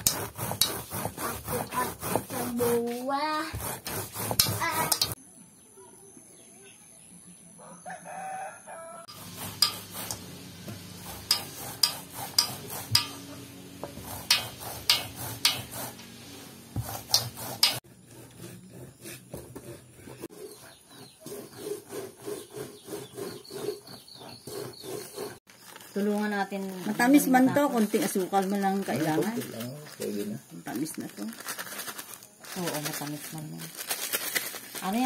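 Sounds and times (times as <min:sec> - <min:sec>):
corn scraping on metal grater: 0:00.0 - 0:05.2, 0:09.1 - 0:25.4.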